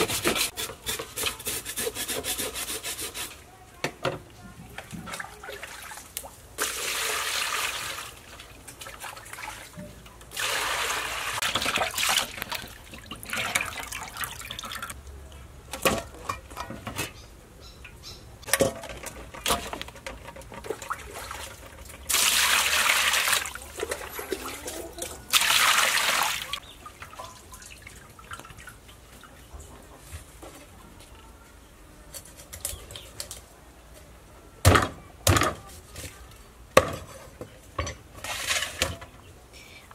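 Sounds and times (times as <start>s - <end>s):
water splashing in metal basin: 5.0s - 15.0s, 20.5s - 29.0s
knocks and handling sounds: 15.7s - 17.2s, 17.8s - 22.0s, 34.7s - 39.2s.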